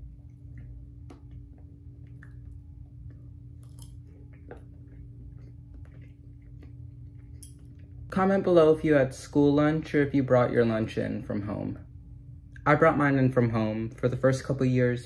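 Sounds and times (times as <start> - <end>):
low steady hum: 0.0 - 15.0
faint chewing: 0.2 - 8.1.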